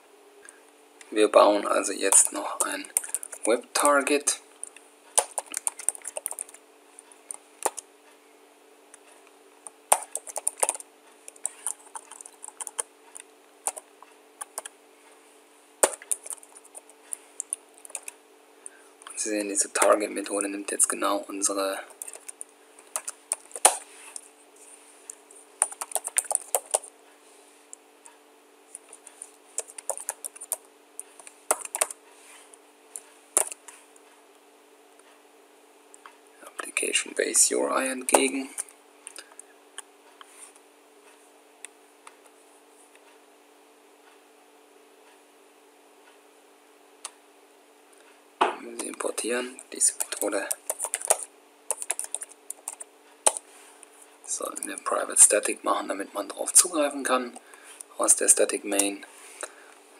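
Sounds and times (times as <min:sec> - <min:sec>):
faint steady hum: 0:00.0 - 0:59.9
keyboard typing: 0:02.0 - 0:07.8, 0:09.6 - 0:14.7, 0:15.8 - 0:18.2, 0:21.8 - 0:24.3, 0:25.1 - 0:26.9, 0:28.7 - 0:32.0, 0:33.0 - 0:33.7, 0:48.8 - 0:53.4.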